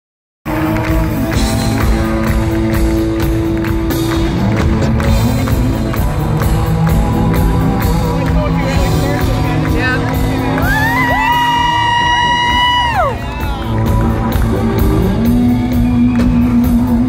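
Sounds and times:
electric guitars: 0:00.5 - 0:17.0
steady drum beat: 0:00.5 - 0:17.0.

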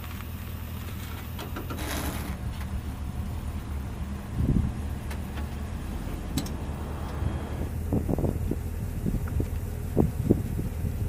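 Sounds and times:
truck engine idling: 0:00.0 - 0:11.0
wind buffeting microphone: 0:03.7 - 0:11.0.

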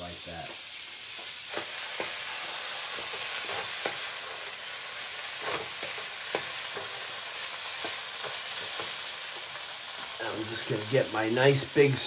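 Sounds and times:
food sizzling in a frying pan: 0:00.0 - 0:12.0
wooden spatula scraping a pan: 0:01.1 - 0:04.6, 0:05.2 - 0:09.6.

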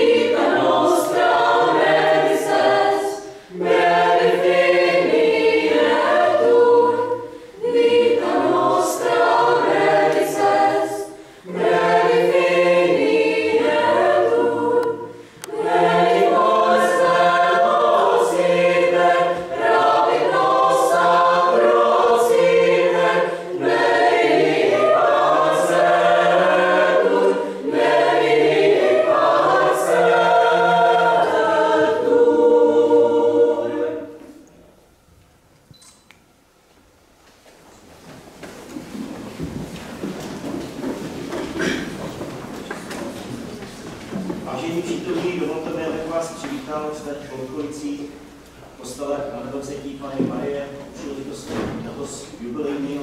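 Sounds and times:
choir singing: 0:00.0 - 0:34.5.

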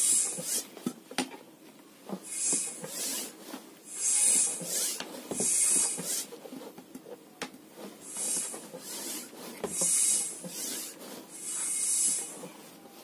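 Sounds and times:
bicycle pump hissing strokes: 0:00.0 - 0:00.7, 0:02.2 - 0:06.4, 0:08.0 - 0:12.5.

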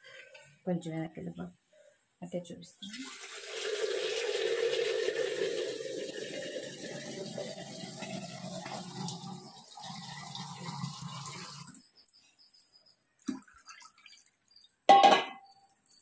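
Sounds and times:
water pouring into pot: 0:02.8 - 0:11.8, 0:13.2 - 0:14.8.

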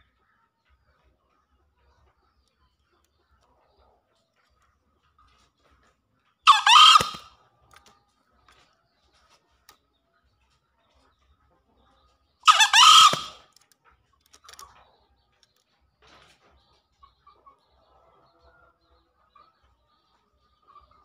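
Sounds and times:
junglefowl crowing: 0:06.5 - 0:07.3, 0:12.4 - 0:13.4.

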